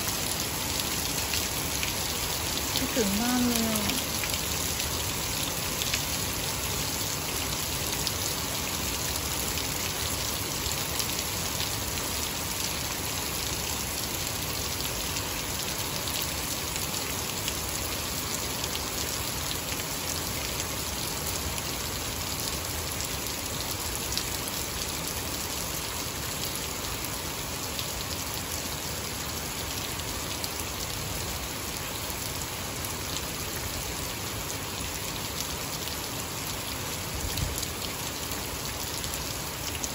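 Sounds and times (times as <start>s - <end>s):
heavy rain on grass: 0.0s - 39.9s.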